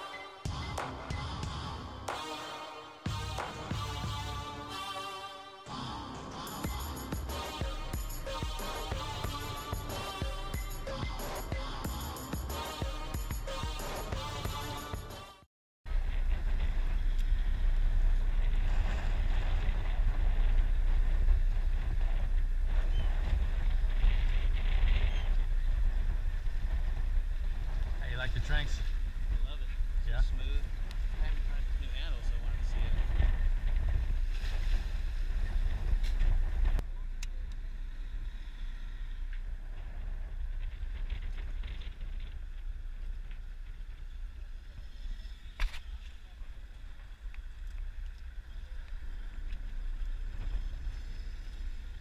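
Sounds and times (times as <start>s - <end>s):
low boat rumble: 15.9s - 52.0s
wind buffeting microphone: 15.9s - 52.0s.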